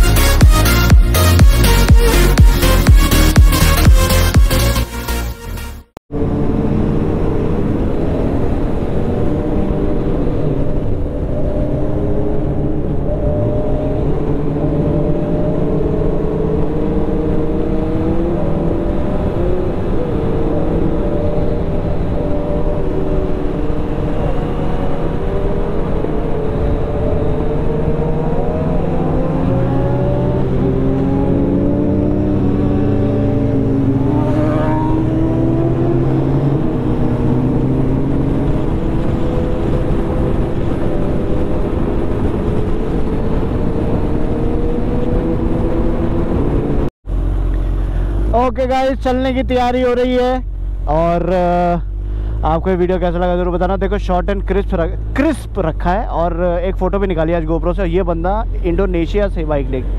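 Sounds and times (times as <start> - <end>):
wind rush on microphone: 6.1 - 48.4
motorcycle engine at road speed: 6.1 - 59.9.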